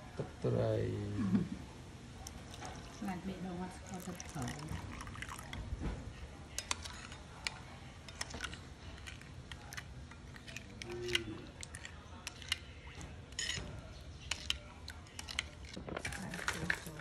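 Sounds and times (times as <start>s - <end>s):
metal spoon clinking on ceramic bowl: 13.3s - 13.7s.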